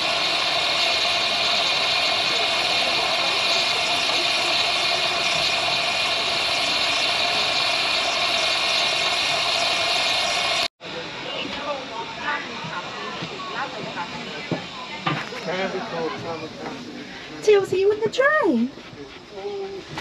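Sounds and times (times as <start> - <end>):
steam hissing from locomotive: 0.0 - 20.0.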